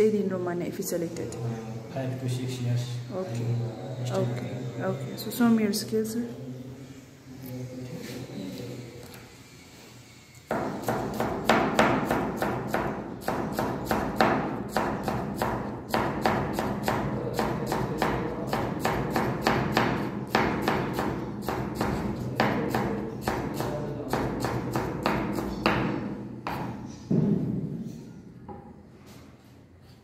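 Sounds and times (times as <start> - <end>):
knife chopping on wooden board: 10.5 - 26.8.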